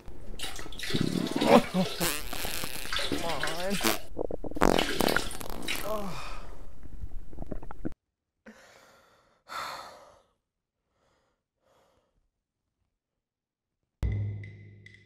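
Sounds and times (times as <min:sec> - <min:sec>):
man breathing heavily: 0:08.5 - 0:12.2.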